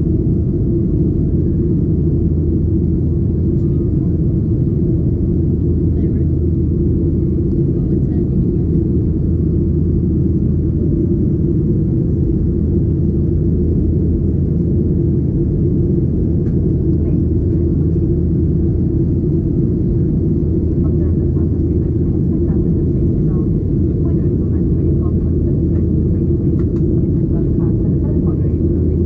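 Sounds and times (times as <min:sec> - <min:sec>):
airplane cabin engine roar: 0:00.0 - 0:29.0
faint voices: 0:07.6 - 0:08.8.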